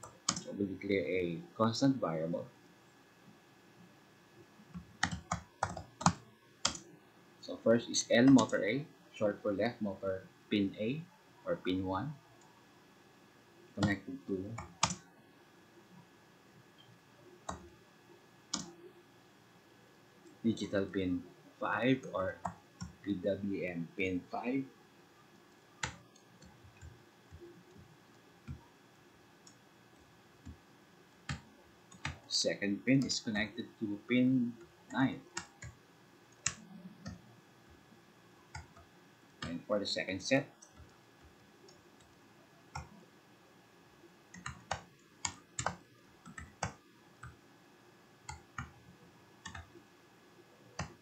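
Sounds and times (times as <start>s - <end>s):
keyboard and mouse clicks: 0.0s - 0.5s, 4.7s - 6.8s, 8.2s - 8.5s, 13.8s - 15.0s, 18.5s - 18.8s, 44.3s - 47.4s, 49.4s - 49.7s.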